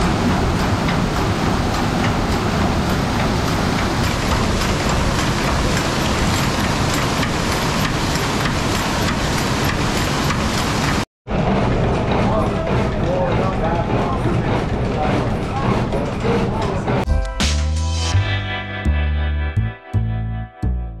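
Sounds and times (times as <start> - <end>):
water rushing through flume: 0.0 - 11.0.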